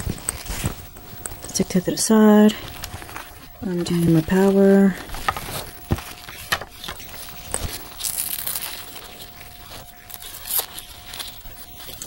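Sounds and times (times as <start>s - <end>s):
wires rustling: 0.0s - 12.0s.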